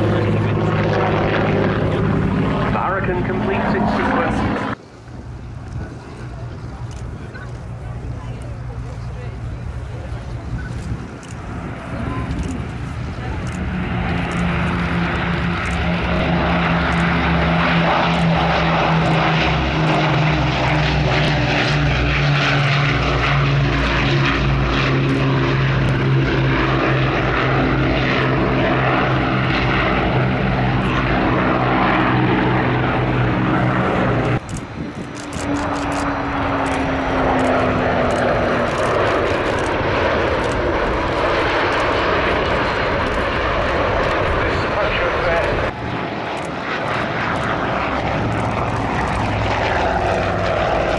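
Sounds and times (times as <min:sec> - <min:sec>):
jet engines falling in pitch: 0:00.0 - 0:50.9
propeller plane engines droning: 0:00.0 - 0:50.9.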